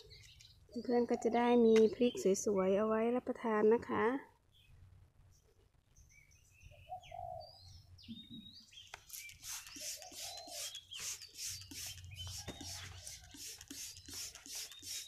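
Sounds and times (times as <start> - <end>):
small birds chirping: 0.0 - 2.7, 4.5 - 15.0
spray bottle squirting: 9.0 - 15.0
doves cooing: 9.6 - 10.8.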